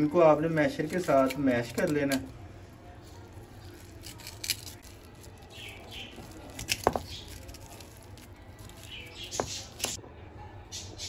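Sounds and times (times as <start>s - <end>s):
masher squashing potatoes: 0.3s - 2.4s, 3.2s - 10.0s.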